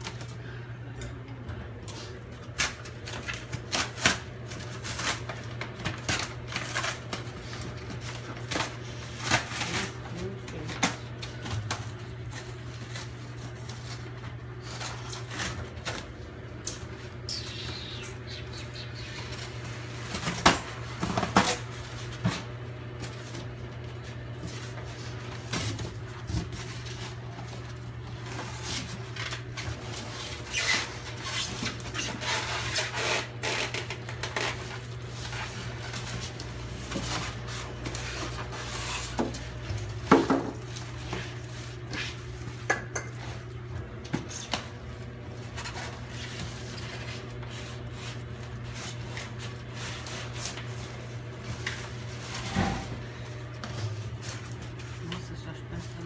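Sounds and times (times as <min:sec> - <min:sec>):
plastic wrap rustling: 0:01.9 - 0:42.6, 0:43.2 - 0:56.0
cardboard rustling and knocking: 0:39.0 - 0:40.7.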